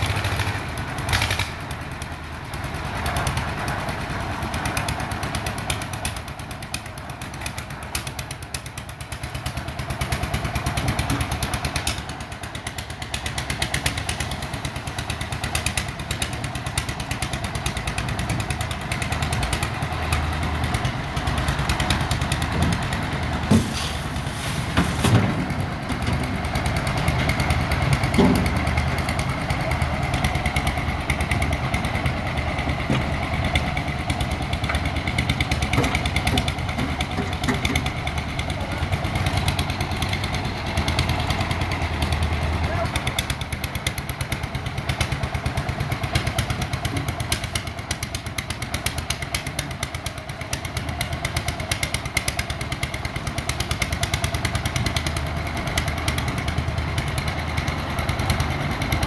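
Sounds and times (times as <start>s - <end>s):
concrete mixer engine running: 0.0s - 59.0s
sharp knocks: 28.0s - 28.8s.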